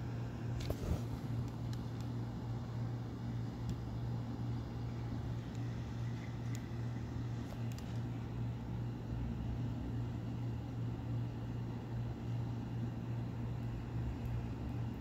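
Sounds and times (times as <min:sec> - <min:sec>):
low mechanical hum: 0:00.0 - 0:15.0.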